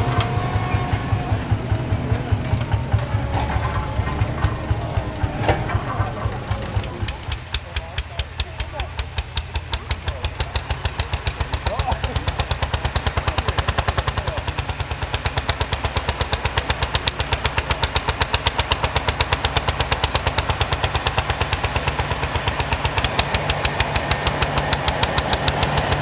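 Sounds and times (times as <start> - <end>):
rapid even clatter: 0.0 - 26.0
tractor diesel engine under load: 0.0 - 26.0.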